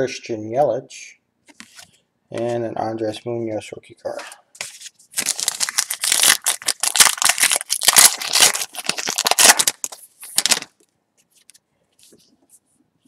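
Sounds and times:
wrapper crinkling and tearing: 5.2s - 10.8s.

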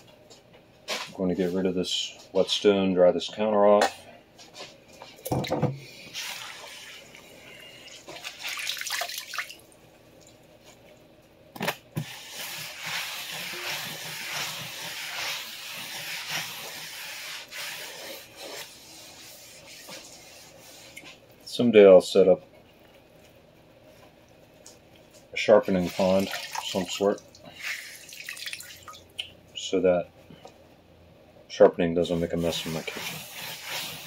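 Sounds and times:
towel wiping wet tiled countertop: 6.0s - 7.2s, 12.0s - 21.2s, 25.7s - 28.2s, 32.4s - 34.0s.

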